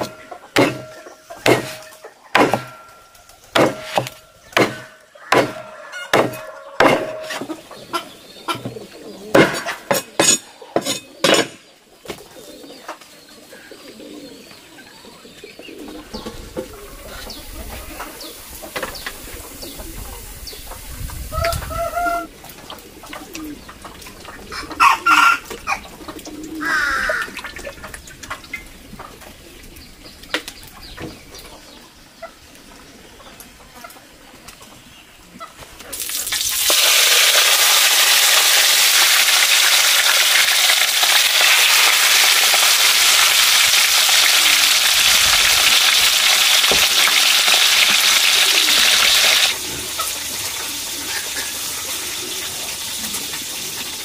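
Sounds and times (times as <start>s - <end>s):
cleaver chopping on wooden board: 0.0s - 2.8s, 3.5s - 7.5s, 9.3s - 11.6s
chickens clucking: 0.0s - 38.4s, 39.2s - 54.0s.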